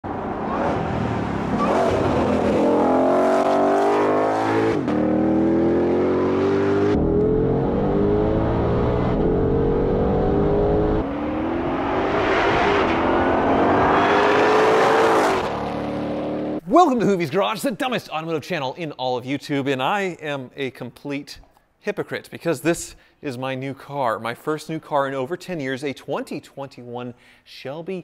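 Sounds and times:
car engine accelerating hard: 0.1 - 16.6.

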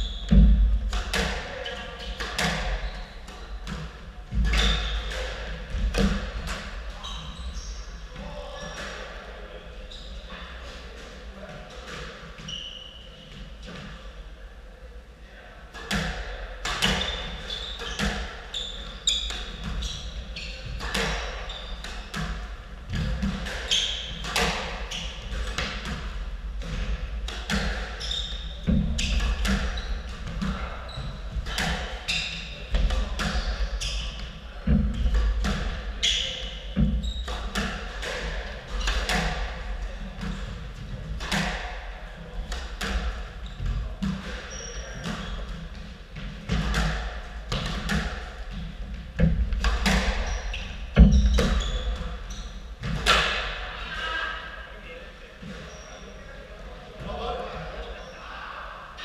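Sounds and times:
squash ball hitting rackets and walls: 0.2 - 7.3, 15.7 - 53.8
shoes squeaking on wooden floor: 7.0 - 8.8, 12.4 - 13.2, 16.8 - 25.7, 26.8 - 34.2, 36.0 - 37.7, 48.5 - 53.4, 55.4 - 56.2.

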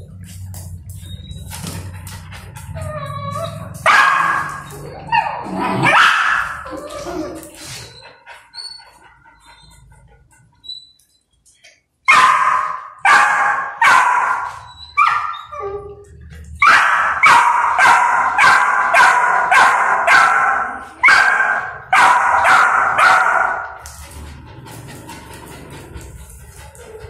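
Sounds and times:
puppy barking high-pitched: 3.3 - 6.7, 12.1 - 15.6, 16.6 - 23.7.

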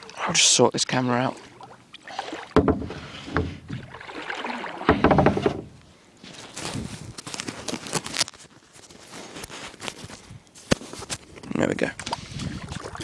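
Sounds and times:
camera handling bump and rustling: 6.2 - 11.4.

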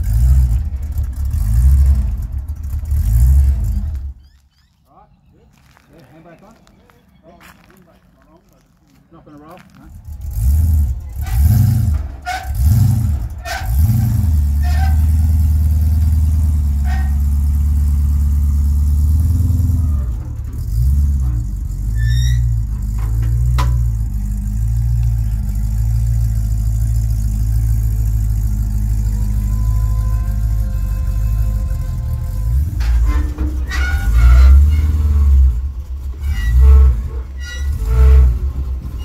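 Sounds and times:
car engine revving: 0.0 - 4.2, 9.9 - 21.9.

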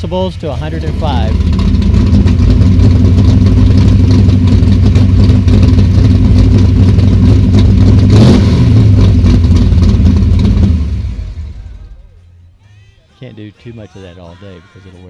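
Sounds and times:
loud car engine running: 0.0 - 12.2
engine rev blip: 5.6 - 12.1.

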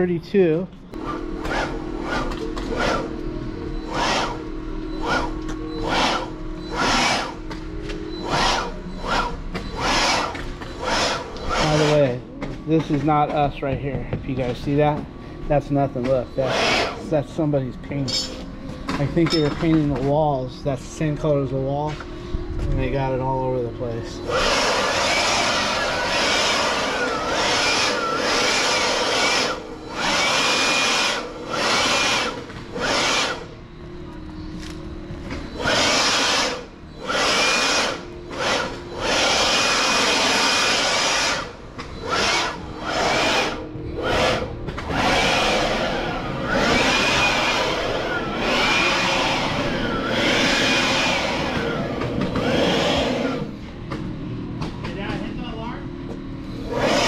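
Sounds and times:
small electric motor running: 1.0 - 12.2, 16.4 - 17.5, 22.9 - 33.6, 35.4 - 53.6, 56.5 - 57.0.

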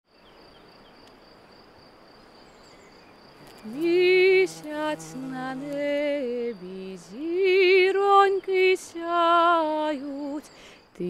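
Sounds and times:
woman singing with vibrato: 3.6 - 10.5.

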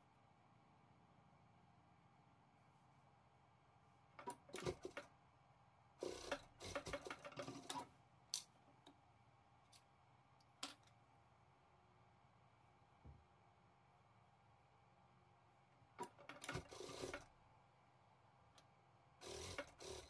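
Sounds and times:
clicks and taps of tools: 9.7 - 11.0.

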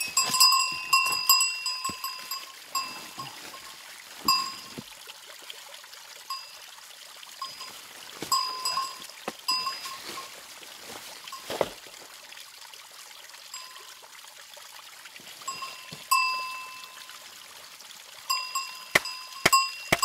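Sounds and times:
stream trickling: 0.0 - 20.0
hammer striking stone: 18.9 - 20.0.

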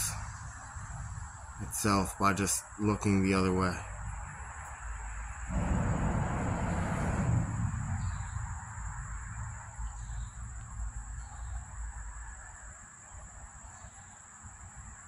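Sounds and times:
low rumble: 5.5 - 11.3.

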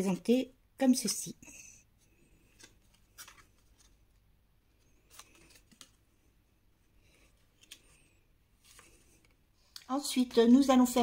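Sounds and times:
cardstock rustling: 2.4 - 6.0.

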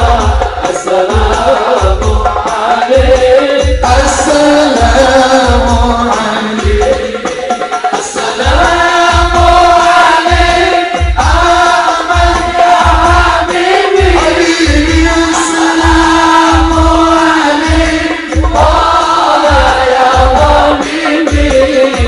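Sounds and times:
deep drum beat: 0.0 - 22.0
man singing through a microphone: 0.0 - 22.0.

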